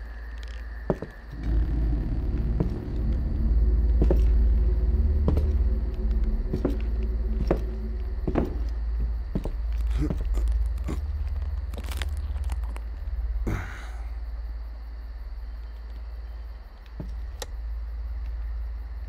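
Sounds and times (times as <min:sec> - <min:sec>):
low rumbling drone: 0:00.6 - 0:15.6.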